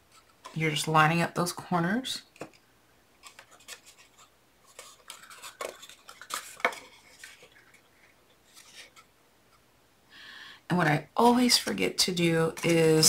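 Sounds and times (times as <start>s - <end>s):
cardboard crinkling and rustling: 3.2s - 9.0s.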